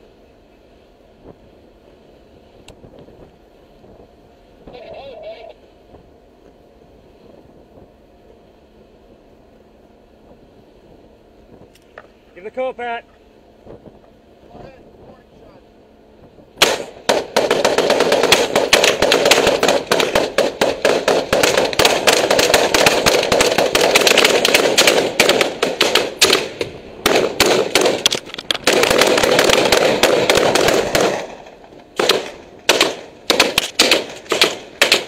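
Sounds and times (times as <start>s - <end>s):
rapid rifle fire: 16.6s - 35.0s
single rifle shots: 16.6s - 35.0s.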